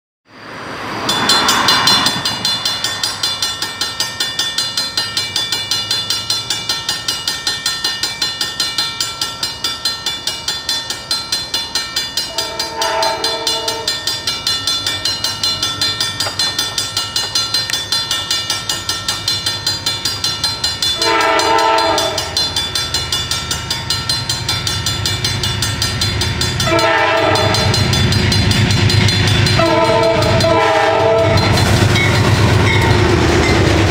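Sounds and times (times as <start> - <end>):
railroad crossing bells ringing: 0.3 - 33.9
train horn: 12.3 - 14.0, 21.0 - 22.4, 26.6 - 27.9, 29.5 - 31.5
locomotive engine rumble: 12.3 - 33.9.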